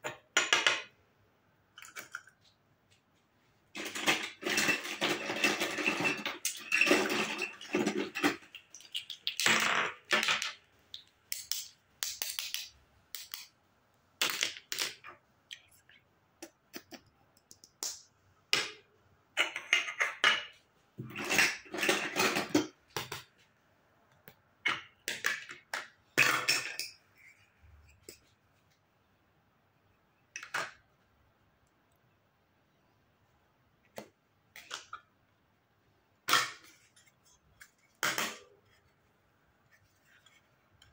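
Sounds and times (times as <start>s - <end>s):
plastic toy pieces clattering: 3.8s - 10.6s.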